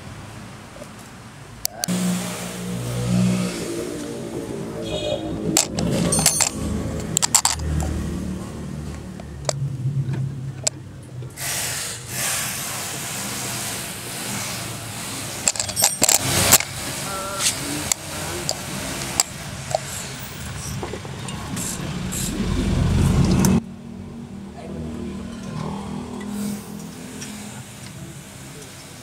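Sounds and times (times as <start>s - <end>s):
vehicle engine running: 1.8s - 11.3s, 12.1s - 25.1s
sharp metallic clinks and knocks: 5.5s - 8.0s, 15.4s - 16.8s.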